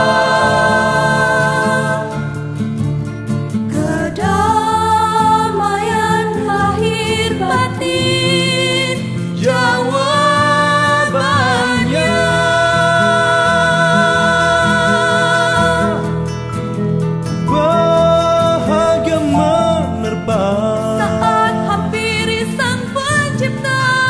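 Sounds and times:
women singing: 0.0s - 2.4s, 3.7s - 16.2s, 21.0s - 24.0s
instrumental accompaniment: 0.0s - 24.0s.

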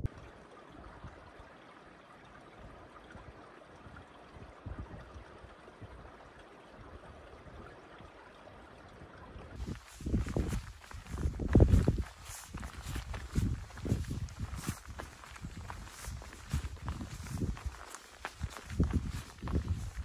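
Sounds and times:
stream water rushing: 0.1s - 20.0s.

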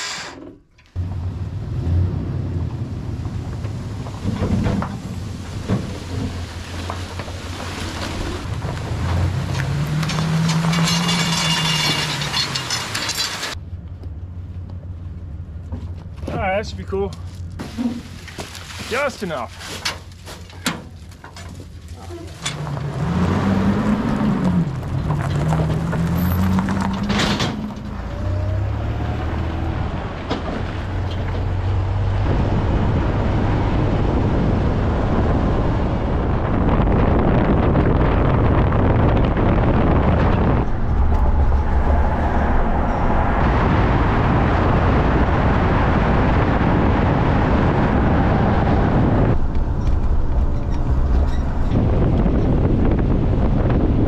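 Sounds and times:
road and wind noise: 0.0s - 54.0s
pickup truck engine: 0.4s - 18.6s, 19.8s - 54.0s.

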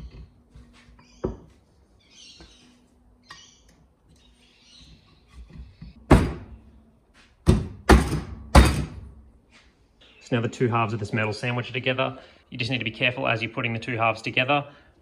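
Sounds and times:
loud thuds of metal case: 7.5s - 9.1s.

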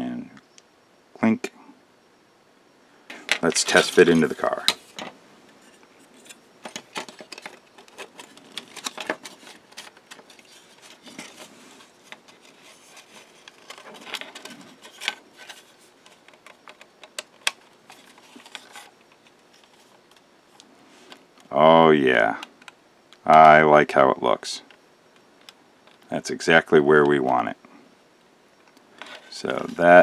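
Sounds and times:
plastic parts clicking and tapping: 6.2s - 20.2s.

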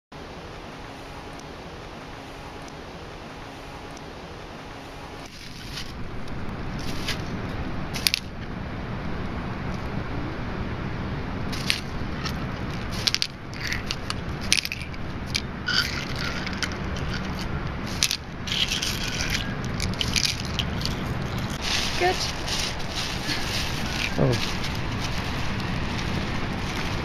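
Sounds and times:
steady low rumble: 0.1s - 27.0s
plastic bag crinkling: 15.7s - 27.0s.

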